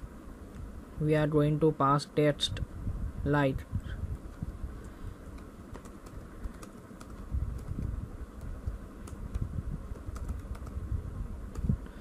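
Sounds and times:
low background rumble: 0:00.0 - 0:12.0
keyboard key clicks: 0:05.3 - 0:10.8.

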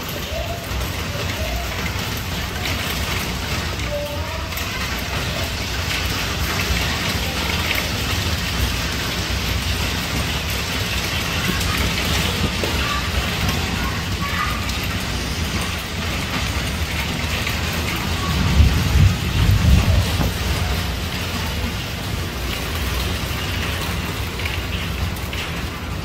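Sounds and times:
rain and hail on tiled roof: 0:00.0 - 0:26.0
low rumble: 0:18.1 - 0:21.6.

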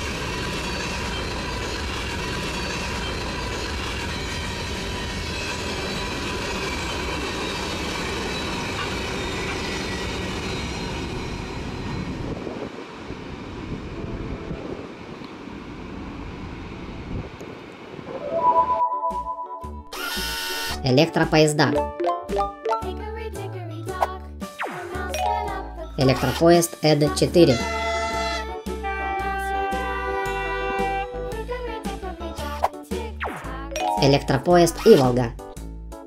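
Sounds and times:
thin steady wheel squeal: 0:00.0 - 0:12.4, 0:20.0 - 0:20.8, 0:27.5 - 0:28.6
train wheels rumbling on rails: 0:00.0 - 0:17.9.

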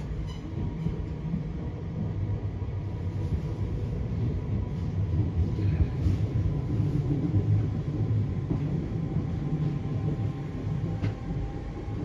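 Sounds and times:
train wheels rumbling: 0:00.0 - 0:12.0.

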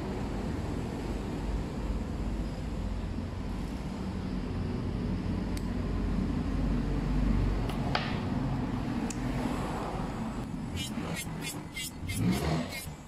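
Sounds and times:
low rumble of machine noise: 0:00.0 - 0:13.0
sharp metallic clicks of hand tool: 0:10.8 - 0:13.0.

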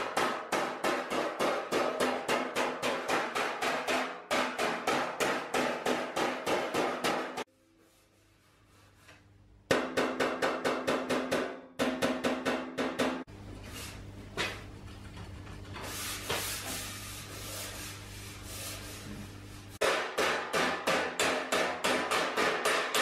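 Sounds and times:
hammer blows on sheet metal: 0:00.0 - 0:07.5, 0:19.8 - 0:23.0.

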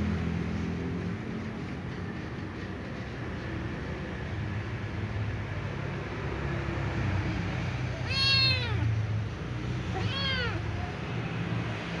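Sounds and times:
cat meowing: 0:07.9 - 0:09.1, 0:09.8 - 0:10.9.

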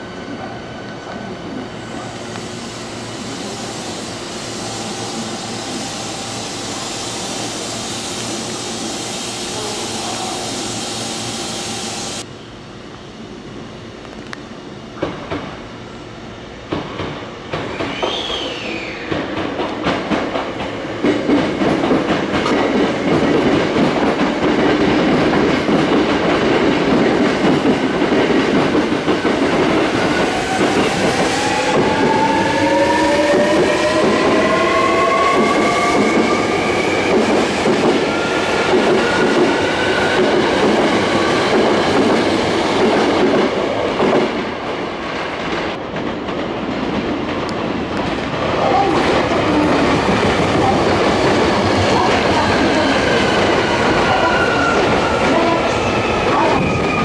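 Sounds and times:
train wheels clattering on rails: 0:16.6 - 0:32.3, 0:33.2 - 0:57.0.

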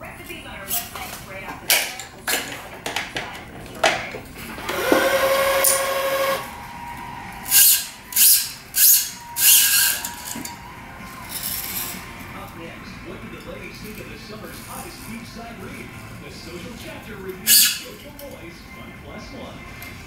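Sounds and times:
motor whirring: 0:04.5 - 0:10.6.

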